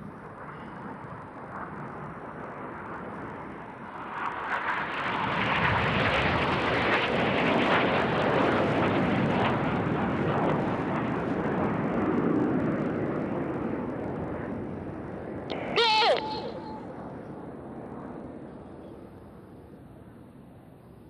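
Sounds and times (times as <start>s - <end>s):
jets passing low: 15.5s - 17.9s.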